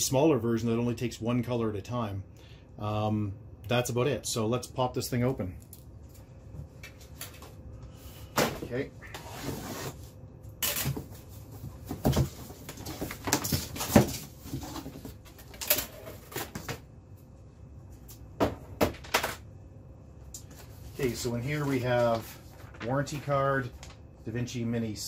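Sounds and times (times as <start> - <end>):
paper packing rustling: 20.4 - 24.0.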